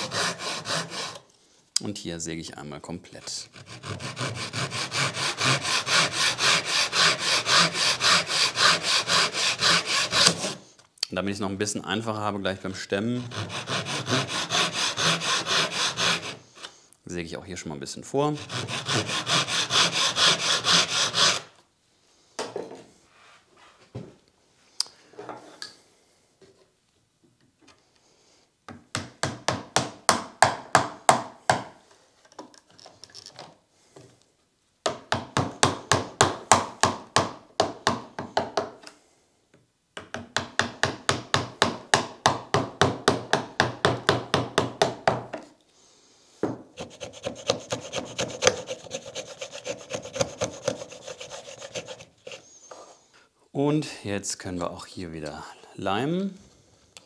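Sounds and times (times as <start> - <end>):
pull saw cutting wood: 0.0 - 1.2, 3.6 - 10.6, 13.2 - 16.4, 18.4 - 21.5, 46.8 - 52.4.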